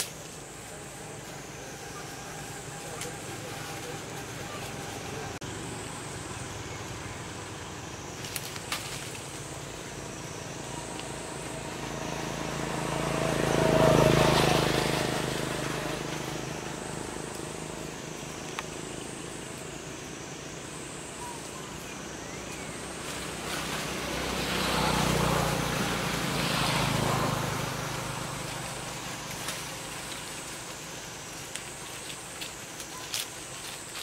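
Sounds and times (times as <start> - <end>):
motor vehicle passing: 9.1 - 21.1, 22.2 - 32.7.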